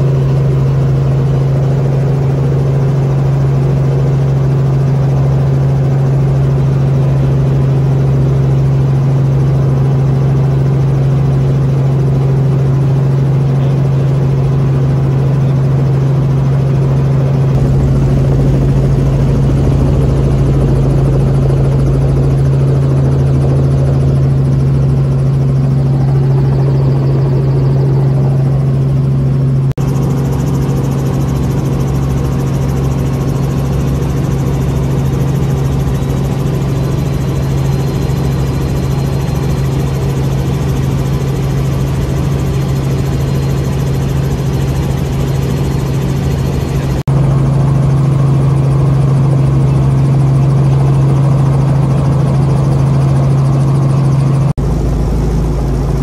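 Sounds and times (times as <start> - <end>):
helicopter droning in flight: 0.0 - 56.0.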